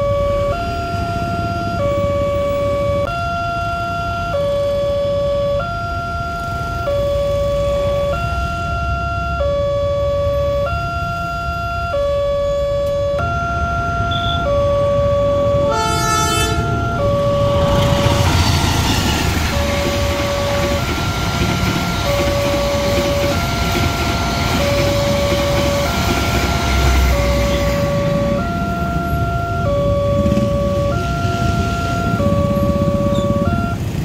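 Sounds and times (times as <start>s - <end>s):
train horn blast: 15.7s - 17.0s
train wheels rumbling on rail: 15.7s - 29.5s.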